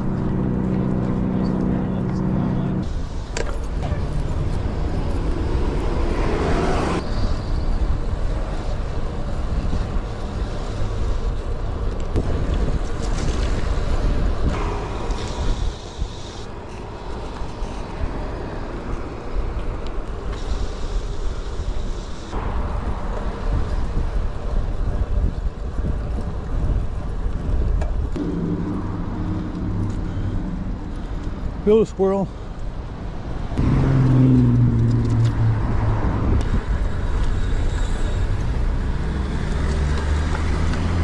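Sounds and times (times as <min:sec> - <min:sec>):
road and traffic noise: 0:00.0 - 0:41.0
wind rumbling on microphone: 0:00.0 - 0:41.0.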